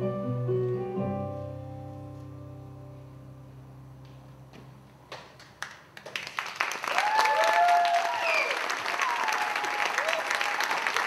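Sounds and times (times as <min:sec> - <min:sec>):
audience applauding: 0:05.1 - 0:11.0
whoops and cheers: 0:06.8 - 0:11.0.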